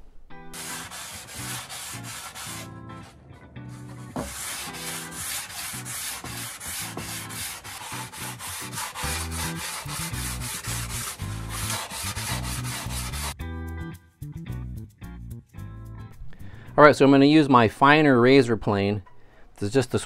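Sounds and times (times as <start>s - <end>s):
sanding block rubbing wood: 0.5s - 2.7s, 3.8s - 13.4s.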